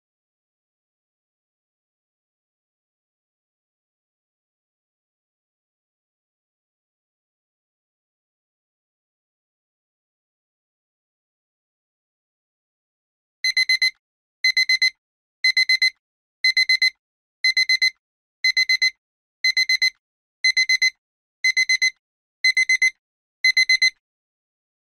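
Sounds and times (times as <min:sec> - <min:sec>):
electronic alarm beeping: 0:13.4 - 0:24.0.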